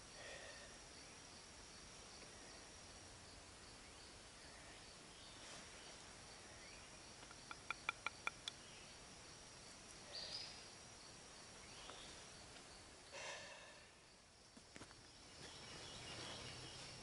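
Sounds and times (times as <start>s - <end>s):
high insect drone: 0.0s - 17.0s
light knocks of wooden pieces: 7.2s - 8.6s.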